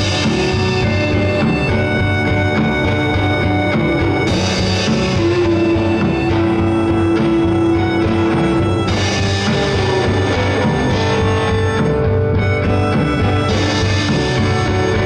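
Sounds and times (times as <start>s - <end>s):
drum kit with cymbals: 0.0s - 15.0s
electric guitar: 0.0s - 15.0s.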